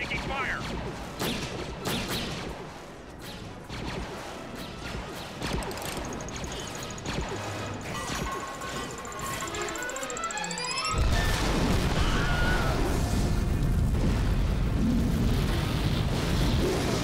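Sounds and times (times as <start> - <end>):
repeating beep: 5.5 - 11.6
blaster shots and impacts: 11.0 - 17.0.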